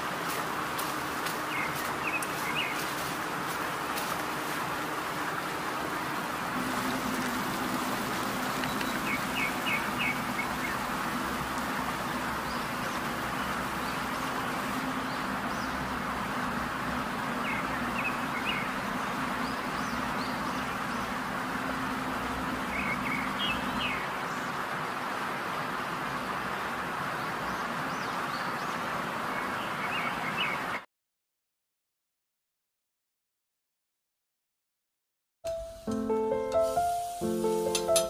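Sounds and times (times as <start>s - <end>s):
steady hiss: 0.0s - 27.0s, 35.5s - 38.0s
bird chirps: 1.5s - 2.8s, 8.5s - 11.0s
low hum: 5.4s - 23.8s.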